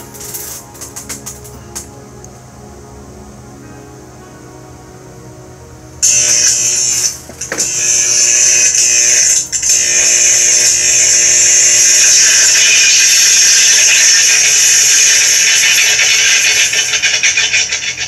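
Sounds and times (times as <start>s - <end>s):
harsh hissing buzz from speaker: 0.0s - 2.3s, 5.3s - 18.0s.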